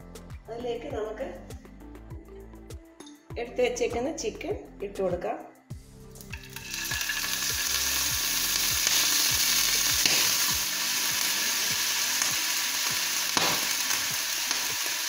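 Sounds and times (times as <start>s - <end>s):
chicken sizzling in hot oil: 6.2s - 15.0s.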